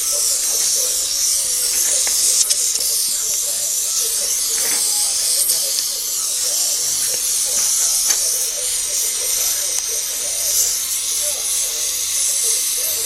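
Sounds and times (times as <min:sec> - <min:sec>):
gas torch flame hissing: 0:00.0 - 0:13.0.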